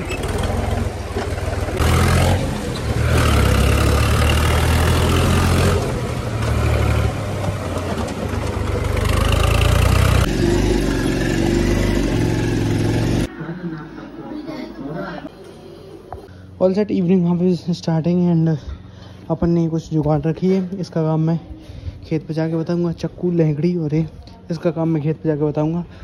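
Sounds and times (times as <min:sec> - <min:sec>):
motorcycle engine on dirt track: 0:00.0 - 0:13.3
tractor diesel engine running: 0:00.0 - 0:13.3.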